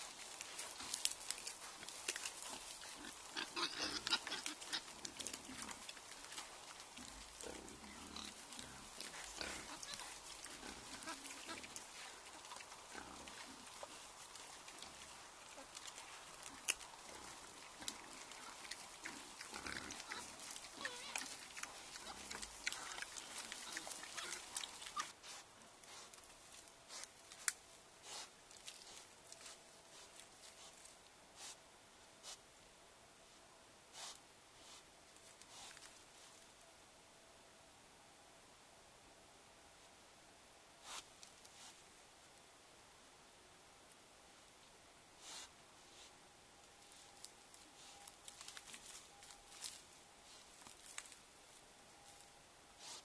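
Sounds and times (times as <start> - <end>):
wild boars grunting: 0.0 - 25.2
rustling leaf litter and twigs: 0.0 - 31.6, 45.2 - 53.0.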